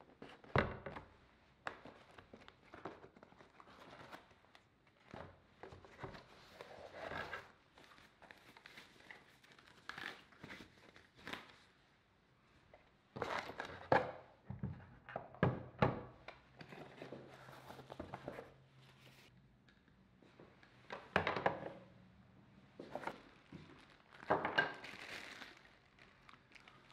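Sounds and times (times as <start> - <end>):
packing tissue rustling: 23.1 - 26.9.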